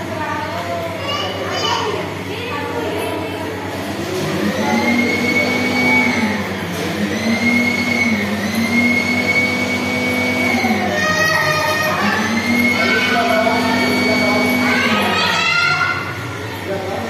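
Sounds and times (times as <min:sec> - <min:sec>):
electric motor whining: 0:03.8 - 0:15.8.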